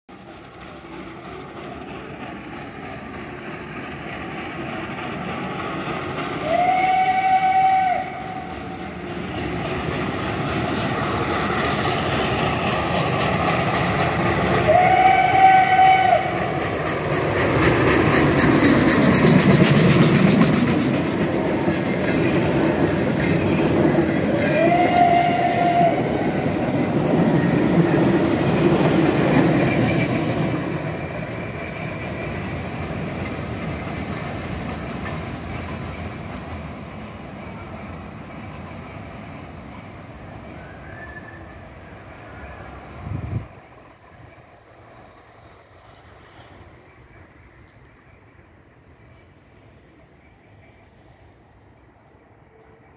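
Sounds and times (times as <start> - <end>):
train rumble and clatter: 0.1 - 52.9
steam locomotive whistle blasts: 6.4 - 8.5, 14.6 - 16.5, 24.4 - 26.3, 40.5 - 42.7.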